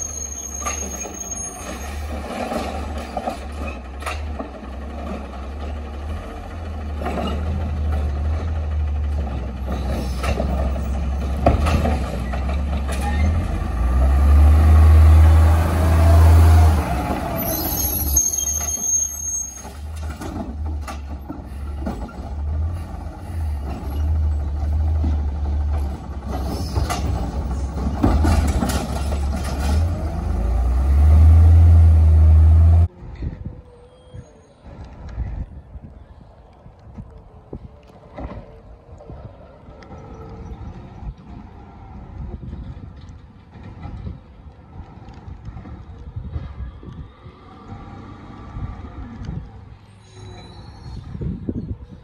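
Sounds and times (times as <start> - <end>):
garbage truck engine rumbling: 0.0 - 33.0.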